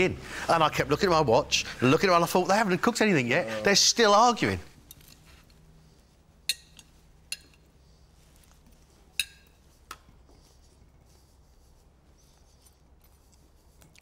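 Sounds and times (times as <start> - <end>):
knife and fork clinking on plate: 9.2 - 9.6.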